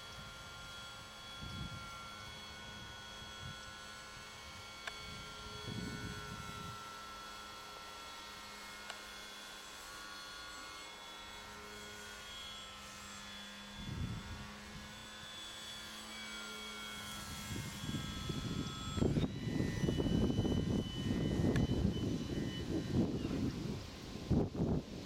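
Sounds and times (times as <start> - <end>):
model plane motor whining: 0.0 - 25.0
wind buffeting microphone: 5.0 - 6.8, 13.8 - 14.9, 17.2 - 25.0.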